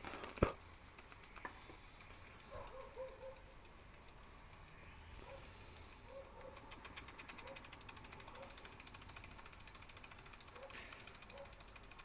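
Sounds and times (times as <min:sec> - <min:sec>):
toy steam engine ticking: 0:00.0 - 0:12.0.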